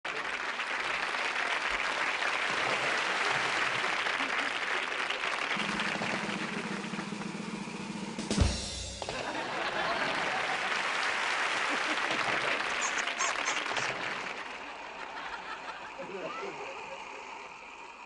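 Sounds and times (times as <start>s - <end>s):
audience applauding: 0.0s - 18.0s
low hum: 5.6s - 10.0s.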